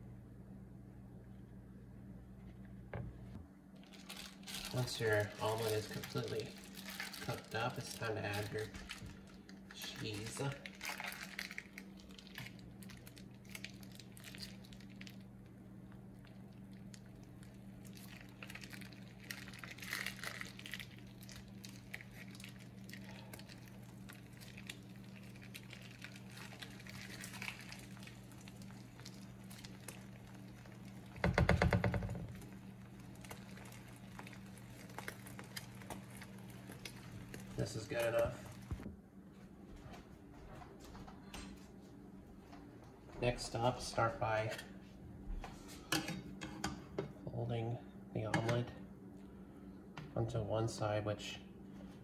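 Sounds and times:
low hum: 0:00.0 - 0:50.5
crackles and pops: 0:02.6 - 0:38.9.

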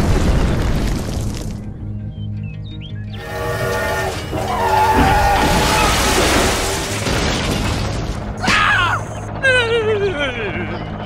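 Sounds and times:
noisy crash and rumble: 0:00.0 - 0:01.7, 0:03.2 - 0:08.5
background music: 0:01.4 - 0:11.0
horn-like tones: 0:03.2 - 0:06.2.

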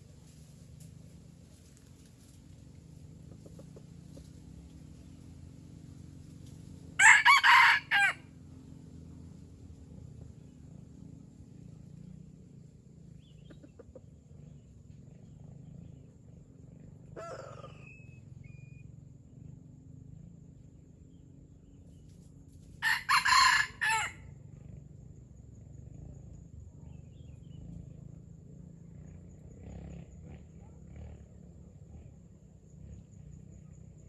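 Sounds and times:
rooster crowing: 0:07.0 - 0:08.3, 0:22.8 - 0:24.3.

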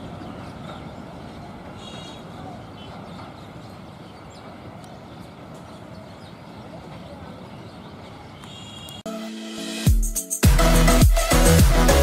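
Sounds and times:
electronic music: 0:09.1 - 0:12.0.

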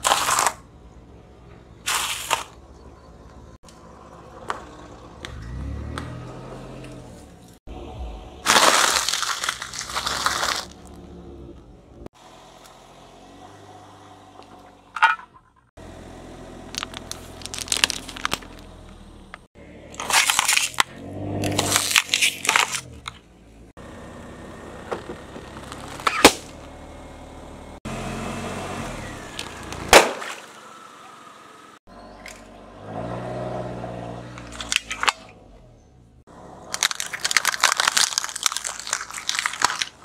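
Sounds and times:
sharp cracks: 0:08.4 - 0:10.8, 0:25.6 - 0:26.6, 0:29.4 - 0:30.6, 0:36.7 - 0:40.0
tyre crushing objects: 0:08.4 - 0:10.8
polystyrene foam crunching and squeaking: 0:08.5 - 0:10.8, 0:16.8 - 0:18.6, 0:36.8 - 0:40.0.

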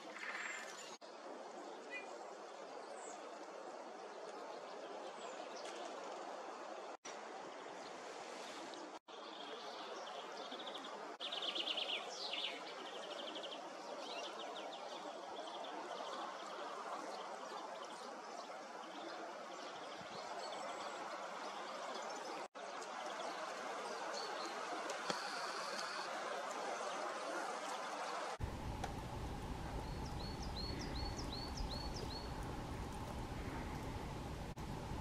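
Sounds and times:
small songbirds calling: 0:09.1 - 0:26.1, 0:28.5 - 0:35.0
steady rushing background: 0:28.3 - 0:35.0.

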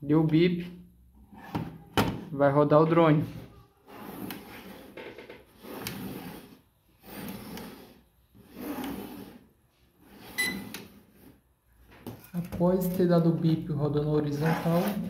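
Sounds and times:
drone scraping on wooden table: 0:03.9 - 0:11.4, 0:14.2 - 0:15.0.

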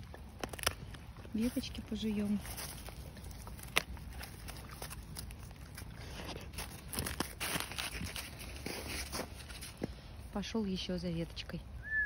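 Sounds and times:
branch snapping: 0:00.0 - 0:01.3, 0:02.5 - 0:05.9
dog chewing dry branch: 0:00.0 - 0:09.9
footsteps crunching in wet snow: 0:00.0 - 0:10.3.

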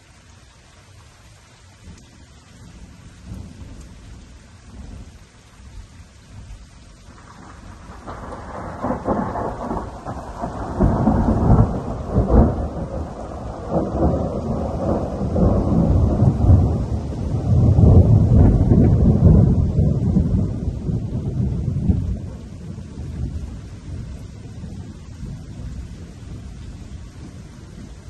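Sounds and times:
steady rain: 0:00.0 - 0:28.0
thunder rumbling: 0:06.4 - 0:28.0.

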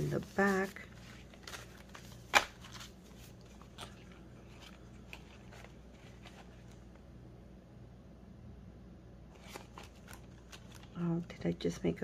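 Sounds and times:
paper banknotes rustling: 0:00.0 - 0:06.9
plastic binder pocket handled: 0:00.0 - 0:06.9, 0:09.3 - 0:11.0
low steady hum: 0:00.0 - 0:12.0.

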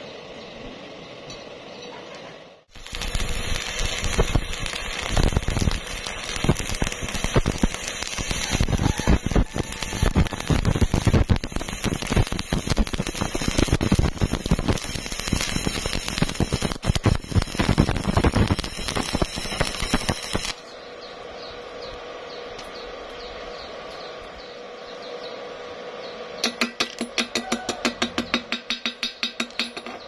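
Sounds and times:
steady hum: 0:02.4 - 0:29.9
welding arc crackling: 0:02.6 - 0:20.8.

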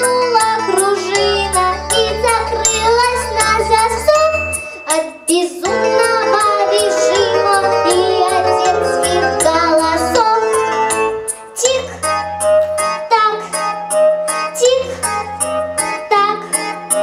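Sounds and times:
backing track with steady beat: 0:00.0 - 0:17.0
children singing: 0:05.7 - 0:10.5.

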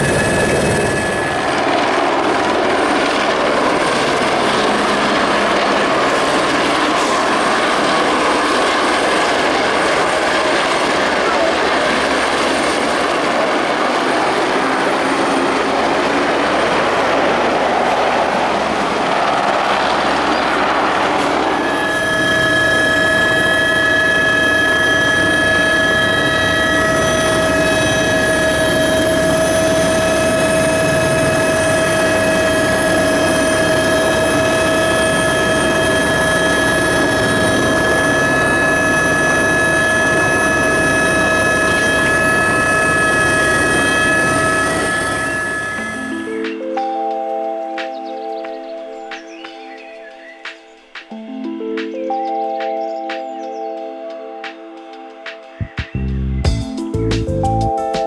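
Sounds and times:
helicopter flying past overhead: 0:00.0 - 0:46.5
helicopter turbine whine in cabin: 0:00.0 - 0:46.6.

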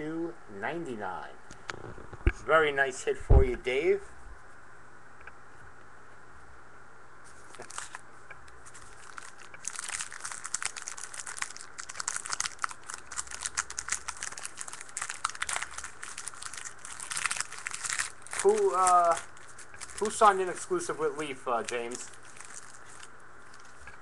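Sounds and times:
foil wrapper tearing and crinkling: 0:07.5 - 0:08.0, 0:08.7 - 0:23.9.

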